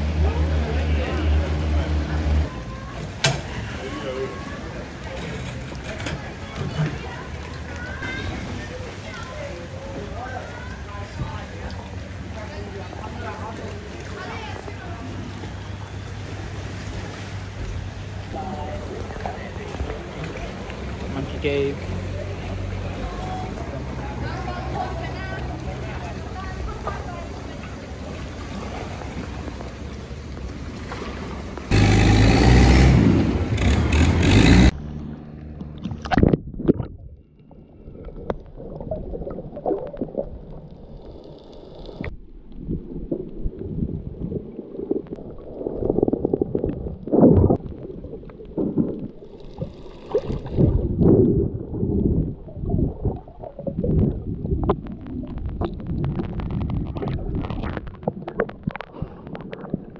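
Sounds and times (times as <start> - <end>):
underwater water sloshing and gurgling: 0.0 - 21.4, 23.5 - 31.7, 34.8 - 59.9
boat engine running: 0.0 - 38.6
wind: 0.0 - 59.9
underwater bubbling: 35.1 - 59.9.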